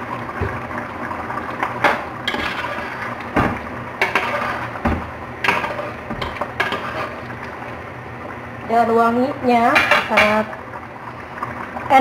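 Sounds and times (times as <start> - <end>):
ladle stirring stew in a pot: 1.4 - 7.8.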